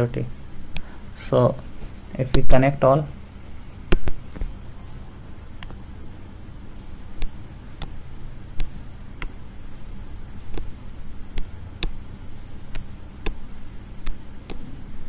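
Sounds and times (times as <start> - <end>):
low steady hum: 0.0 - 15.0
computer mouse clicking: 10.3 - 12.0, 14.0 - 14.9.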